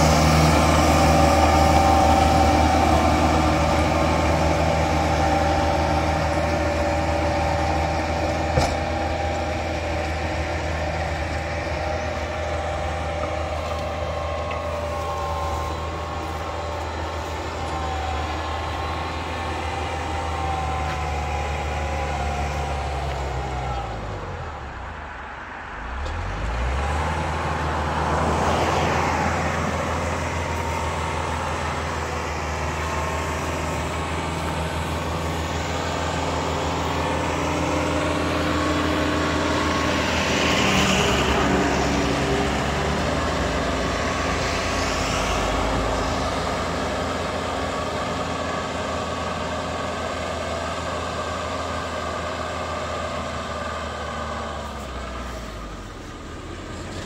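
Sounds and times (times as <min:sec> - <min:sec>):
tractor diesel engine running: 0:00.0 - 0:57.0.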